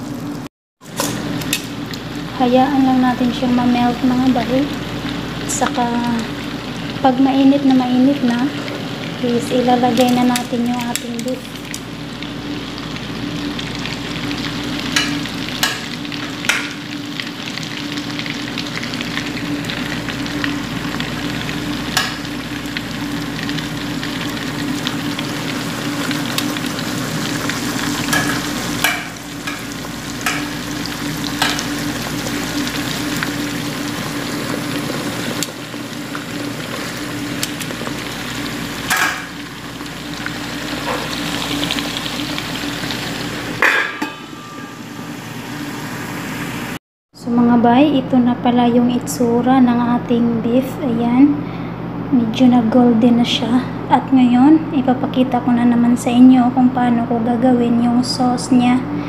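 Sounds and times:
beef sizzling in a pan: 0.0s - 46.8s.

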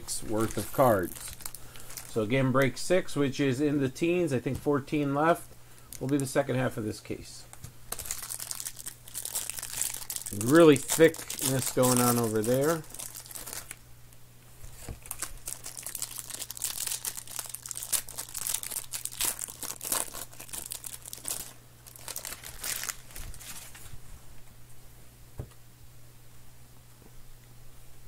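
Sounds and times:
plastic wrapper crinkling: 0.2s - 2.3s, 5.9s - 6.4s, 7.6s - 13.8s, 14.6s - 24.0s.

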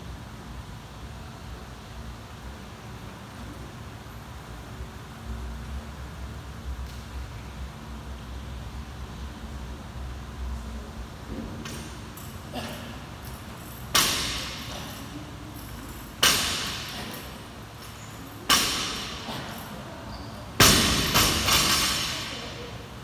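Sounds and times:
barbell dropped on rubber floor: 11.3s - 15.0s, 15.7s - 17.4s, 18.4s - 19.7s, 20.6s - 22.5s
barbell bouncing knocks: 13.9s - 15.0s, 16.2s - 17.4s, 18.4s - 19.6s, 20.6s - 22.3s.

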